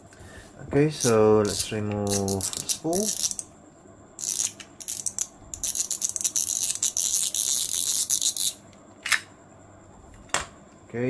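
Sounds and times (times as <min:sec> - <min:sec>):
fishing reel drag clicking: 0:01.0 - 0:03.4, 0:04.2 - 0:08.6.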